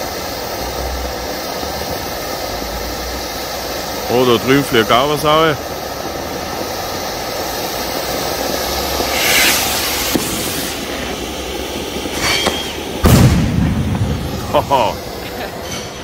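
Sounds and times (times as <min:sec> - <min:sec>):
fountain firework hissing: 0:00.0 - 0:16.0
rocket bursting bang: 0:08.9 - 0:15.9.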